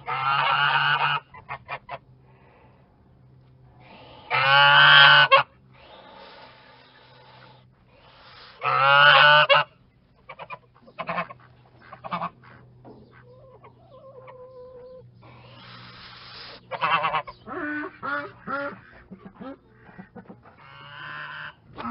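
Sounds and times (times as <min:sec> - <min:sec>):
geese honking: 0:00.0 - 0:02.5, 0:03.8 - 0:21.9.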